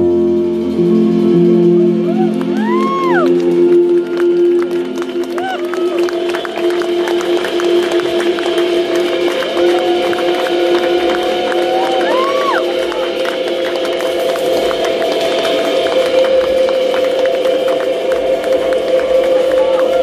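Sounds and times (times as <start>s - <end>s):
amplified guitars: 0.0s - 20.0s
keyboard long notes: 0.0s - 20.0s
drums and cymbals: 5.4s - 20.0s.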